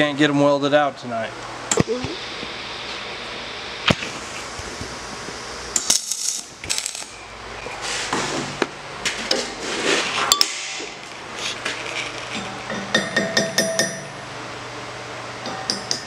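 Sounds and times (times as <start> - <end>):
steel parts clinking: 5.9 - 7.1.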